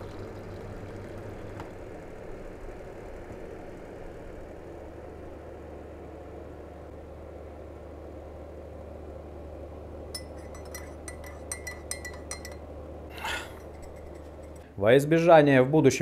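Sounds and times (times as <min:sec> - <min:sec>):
steady low hum: 0:00.0 - 0:16.0
teaspoon clinking in mug: 0:10.2 - 0:12.6.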